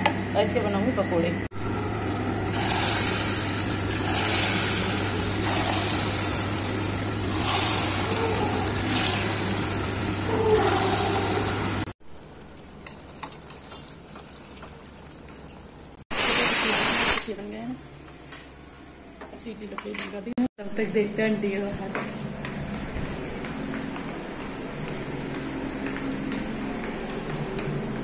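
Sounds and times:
food frying in hot oil: 1.6s - 19.0s.

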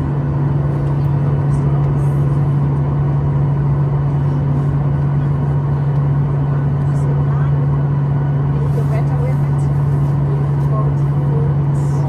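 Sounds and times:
airplane cabin drone: 0.0s - 12.0s.

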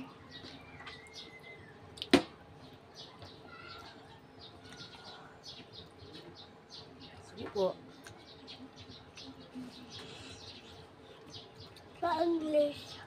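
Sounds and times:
whistled bird notes: 0.0s - 1.8s
small birds chirping: 0.0s - 13.0s.

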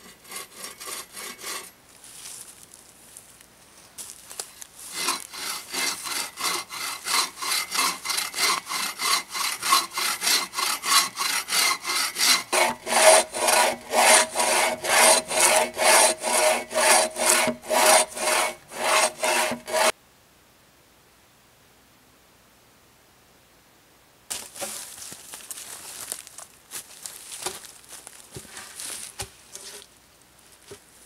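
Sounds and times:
saw cutting through log: 0.0s - 1.7s, 4.8s - 19.9s.

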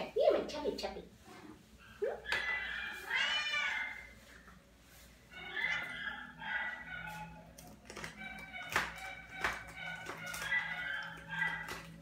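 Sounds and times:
cat meowing: 2.4s - 4.1s.

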